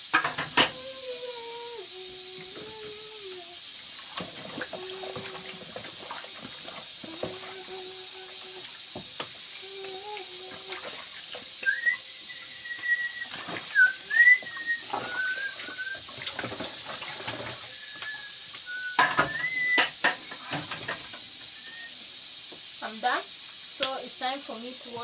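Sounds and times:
food cooking hiss: 0:00.0 - 0:25.0
kitchenware clinks and knocks: 0:00.1 - 0:00.8, 0:19.0 - 0:21.1.

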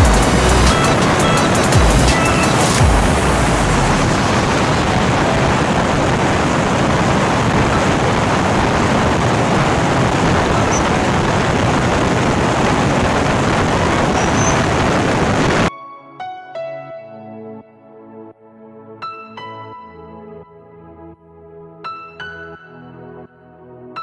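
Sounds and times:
motorcycle engine and tyre noise: 0:00.0 - 0:15.6
wind rushing over microphone: 0:00.0 - 0:15.7.

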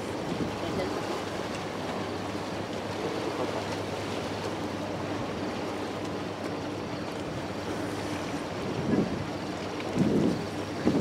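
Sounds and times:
rushing outdoor noise: 0:00.0 - 0:11.0.

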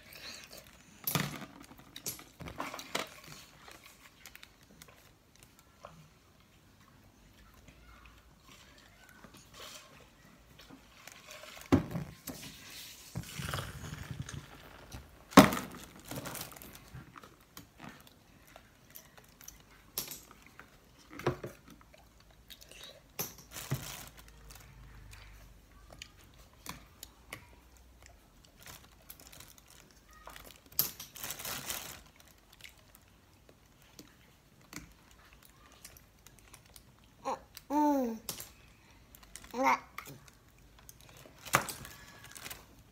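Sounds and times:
paper crinkling and tearing: 0:31.2 - 0:32.8.

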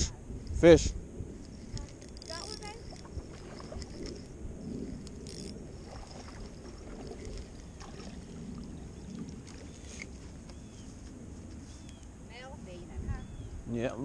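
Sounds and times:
wind rumble on microphone: 0:00.0 - 0:14.0
faint clicks: 0:01.4 - 0:04.2.

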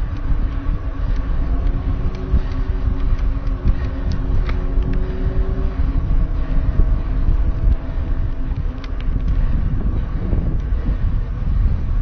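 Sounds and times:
mountain bike rolling on dirt: 0:00.0 - 0:12.0
wind buffeting microphone: 0:00.0 - 0:12.0
sharp clicks: 0:00.1 - 0:05.0, 0:08.5 - 0:09.4.

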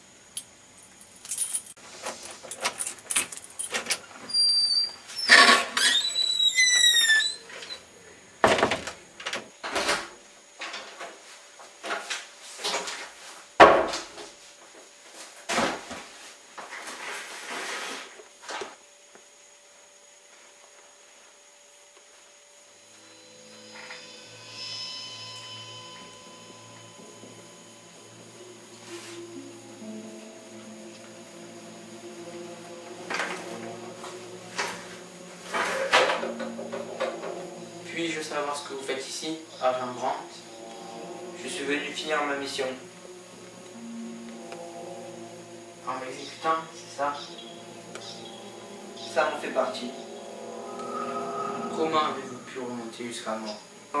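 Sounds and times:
door hinge squealing: 0:04.3 - 0:07.8
low hum: 0:22.7 - 0:54.0.

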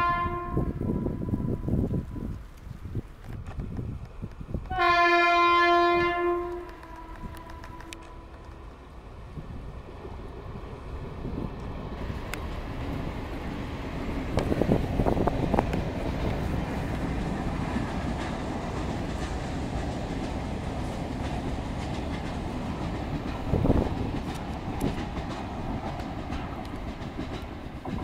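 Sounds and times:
train rumbling past: 0:00.0 - 0:28.0
wheels clacking over rail joints: 0:06.1 - 0:28.0.

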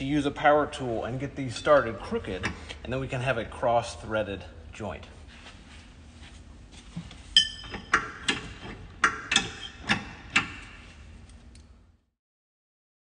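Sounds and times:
low background hum: 0:00.0 - 0:12.1
metal bolts clinking on flange: 0:07.4 - 0:10.7.

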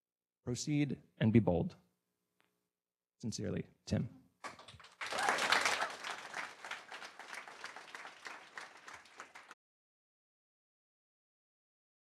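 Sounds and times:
audience applauding: 0:04.4 - 0:09.6.

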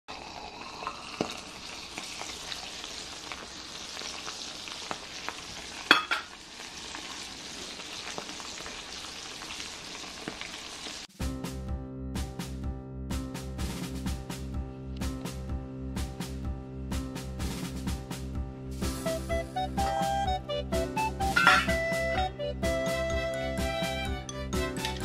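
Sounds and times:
meat sizzling in a skillet: 0:00.1 - 0:11.1
background music: 0:11.1 - 0:25.0.

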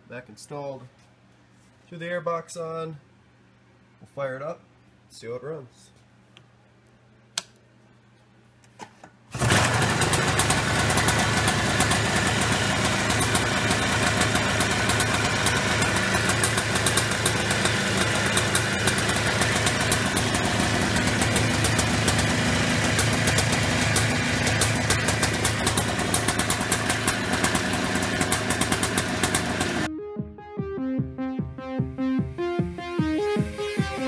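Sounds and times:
engine starting and idling: 0:09.3 - 0:29.9.

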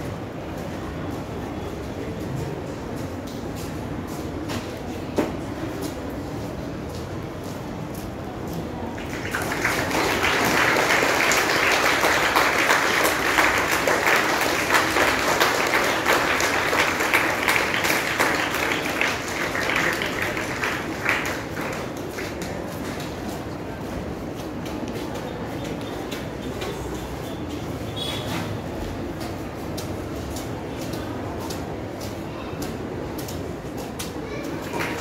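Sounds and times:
audience applauding: 0:08.9 - 0:22.5.

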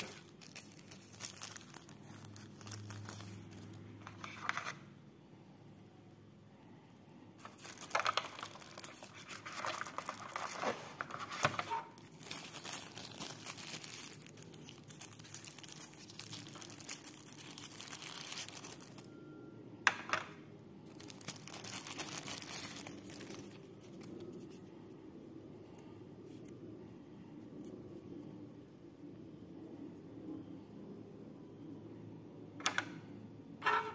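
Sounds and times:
tissue paper crinkling: 0:00.0 - 0:04.5, 0:07.4 - 0:19.1, 0:20.9 - 0:24.5.

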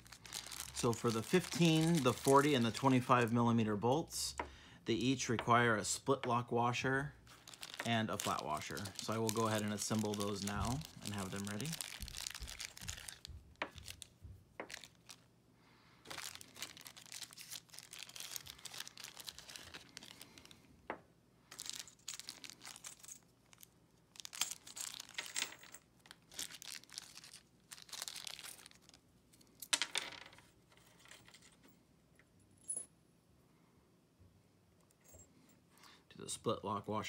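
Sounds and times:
plastic bags crinkling: 0:00.0 - 0:03.3, 0:06.9 - 0:15.3, 0:16.0 - 0:20.7, 0:21.5 - 0:29.0.

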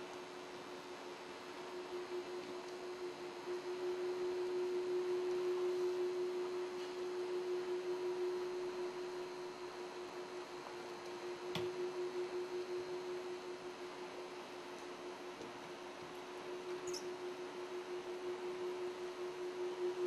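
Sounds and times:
steady drone tone: 0:01.6 - 0:15.3, 0:16.3 - 0:20.0.

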